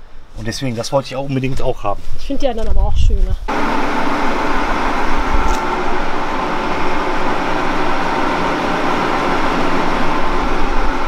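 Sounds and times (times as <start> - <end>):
car engine running: 3.5 - 11.0.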